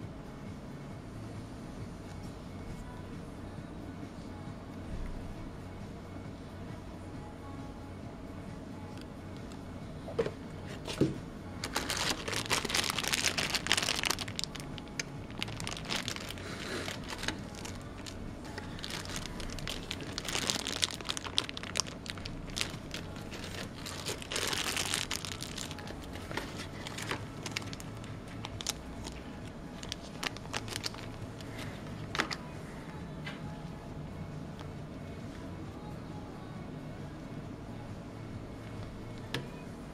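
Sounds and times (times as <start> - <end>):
plastic bag crinkling: 11.6 - 32.4.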